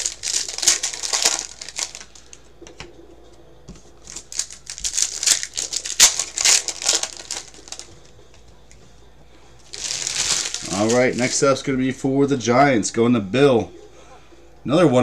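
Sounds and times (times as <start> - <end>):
foil wrapper crinkling: 0.0 - 2.4, 4.0 - 8.2, 9.6 - 11.7.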